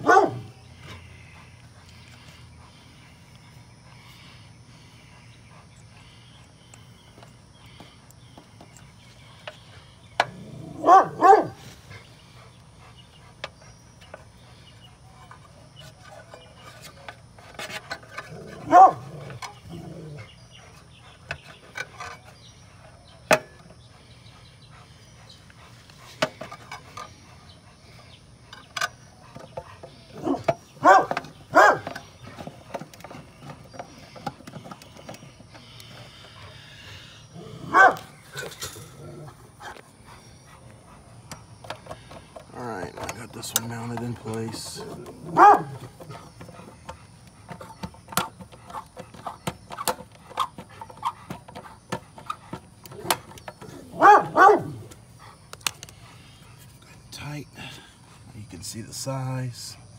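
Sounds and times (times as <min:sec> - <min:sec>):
dog barking: 0:00.0 - 0:00.5, 0:10.8 - 0:11.6, 0:18.6 - 0:19.0, 0:30.2 - 0:31.9, 0:37.7 - 0:38.1, 0:45.2 - 0:45.8, 0:53.9 - 0:54.8.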